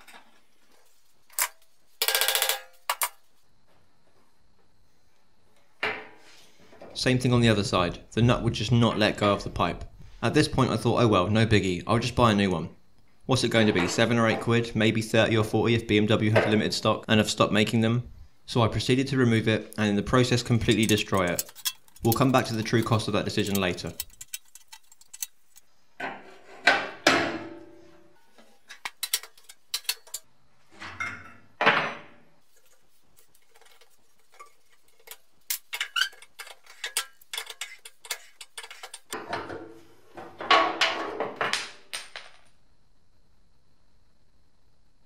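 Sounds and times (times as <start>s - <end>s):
metal grinding and scraping: 20.3s - 26.8s, 28.6s - 31.4s, 32.5s - 39.6s
metal clicks and clinks: 20.5s - 25.6s, 28.8s - 30.3s, 34.3s - 39.2s.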